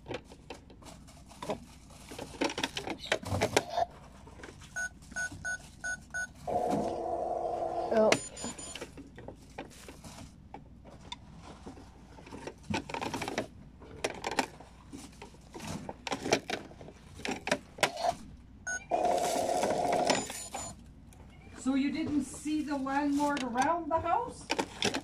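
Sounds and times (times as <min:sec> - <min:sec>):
electronic toy tone: 0:19.9 - 0:20.7.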